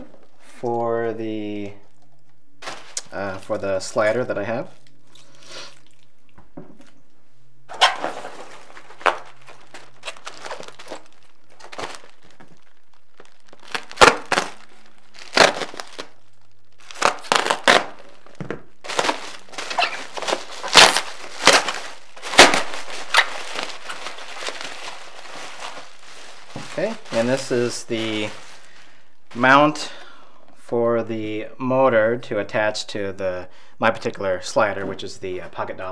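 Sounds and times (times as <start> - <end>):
bubble wrap crinkling: 1.7 - 6.2, 7.7 - 30.0.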